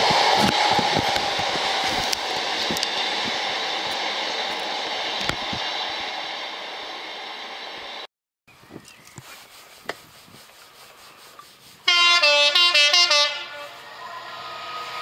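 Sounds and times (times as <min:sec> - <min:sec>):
freight train wheels rolling: 0:00.0 - 0:08.1.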